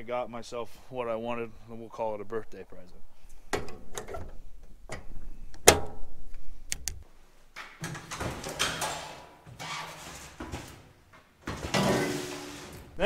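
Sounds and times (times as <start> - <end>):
toolbox scraping on workbench: 9.6 - 10.8, 11.5 - 13.0.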